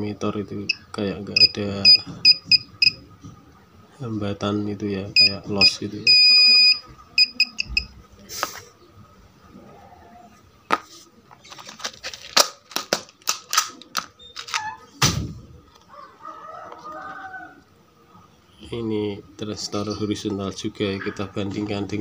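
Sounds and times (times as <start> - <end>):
multimeter beeping: 0.7 - 3.0, 5.2 - 7.9.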